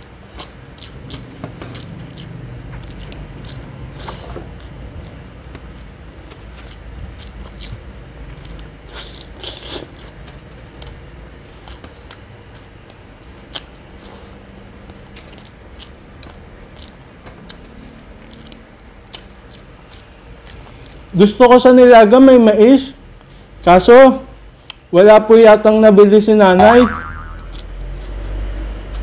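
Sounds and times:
person chewing food: 0.0 - 5.2, 6.2 - 21.1, 27.0 - 28.3.

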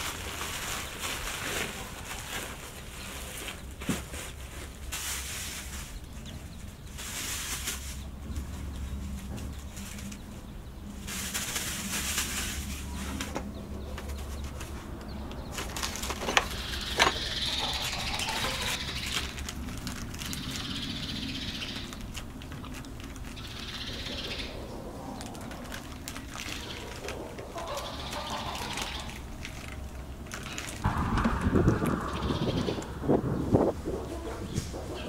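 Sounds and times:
plastic bag rustling: 0.0 - 8.2, 11.0 - 14.9, 15.5 - 21.0, 25.1 - 31.3.

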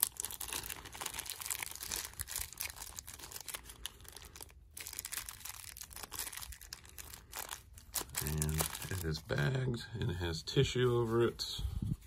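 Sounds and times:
packaging crinkling: 0.0 - 9.6.

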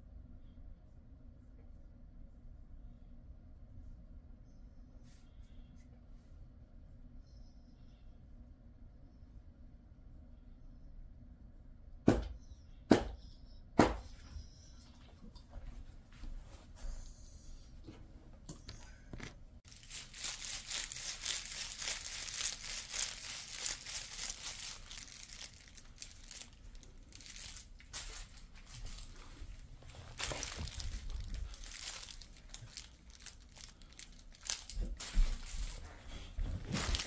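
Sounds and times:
crinkly plastic rustling: 19.0 - 37.0.

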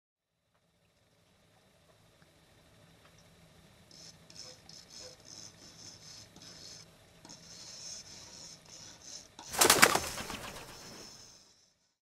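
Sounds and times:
bird wings flapping: 9.5 - 11.2.

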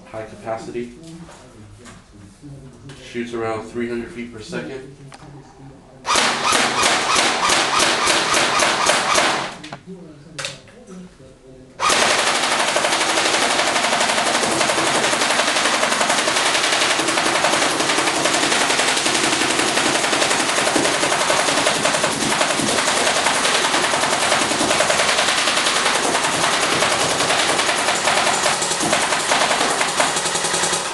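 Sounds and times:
airsoft gun automatic fire: 6.1 - 9.6, 11.8 - 30.9
pellets striking cardboard: 14.2 - 30.9.

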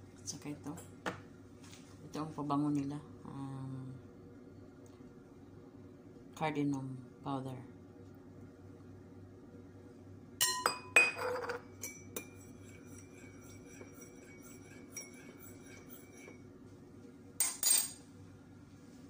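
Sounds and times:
glass ringing: 10.4 - 12.3
metal spoon clinking glass bowl: 10.4 - 16.4, 17.4 - 18.0.

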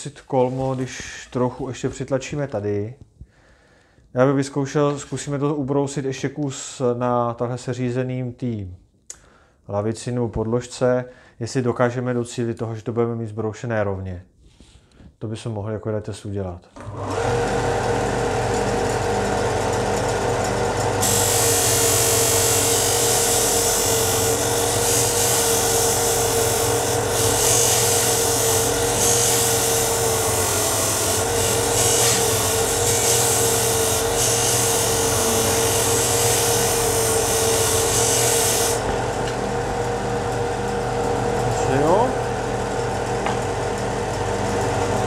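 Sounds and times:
sander motor hum: 16.8 - 45.0
wood sanding hiss: 21.0 - 38.8.

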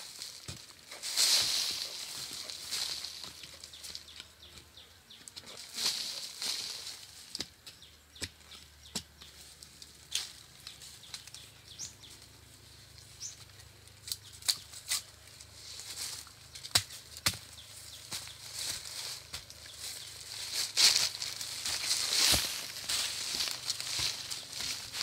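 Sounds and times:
dry bamboo leaves rustling: 0.0 - 4.6, 5.2 - 7.6, 9.3 - 25.0
bamboo shoots knocking and snapping: 5.3 - 11.4, 14.0 - 15.1, 16.5 - 19.8.

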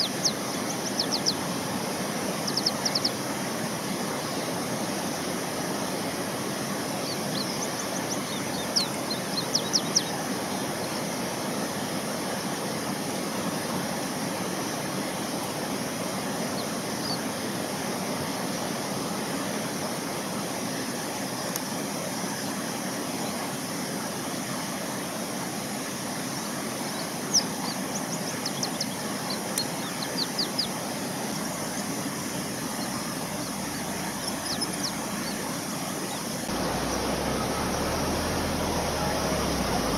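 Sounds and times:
outdoor background noise: 0.0 - 39.9
high-pitched bird chirps: 34.2 - 35.4.

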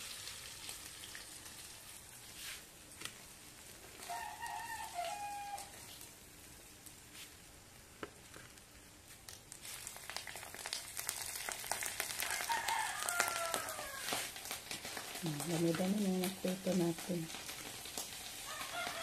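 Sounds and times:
fish frying in hot oil: 0.0 - 19.0
rooster crowing: 4.0 - 5.8, 12.2 - 14.2, 18.4 - 19.0.

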